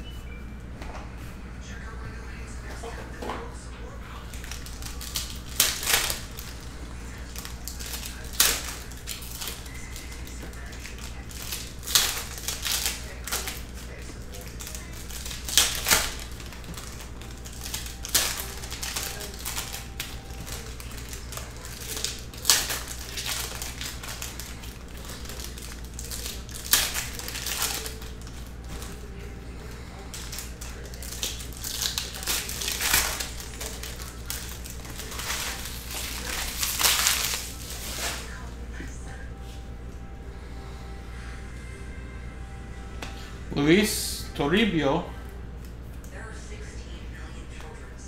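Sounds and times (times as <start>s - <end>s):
foil wrappers crinkling and tearing: 4.1s - 38.6s.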